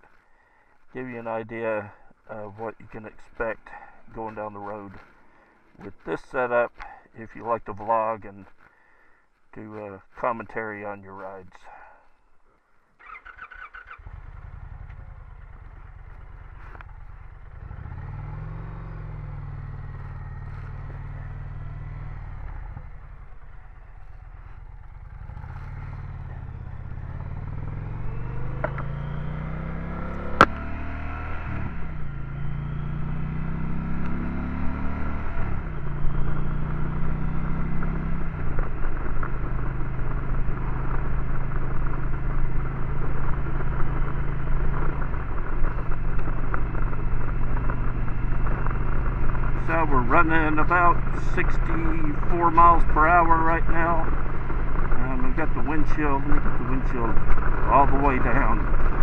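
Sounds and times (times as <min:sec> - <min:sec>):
motorcycle engine accelerating: 0:13.0 - 0:59.0.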